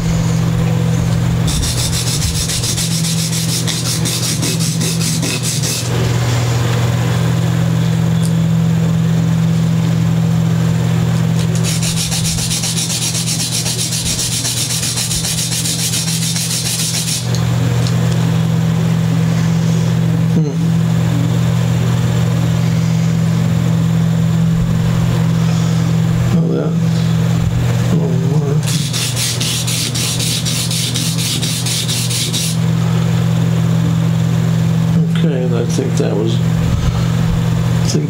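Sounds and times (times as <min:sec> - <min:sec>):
steady low hum: 0:00.0 - 0:38.0
scratchy sanding on sandpaper: 0:01.5 - 0:05.9, 0:11.5 - 0:17.3, 0:28.7 - 0:32.6.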